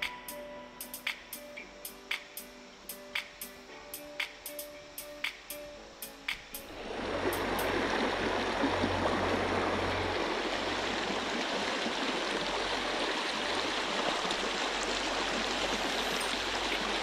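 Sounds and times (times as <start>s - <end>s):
creek water rushing over stones: 6.4s - 17.0s.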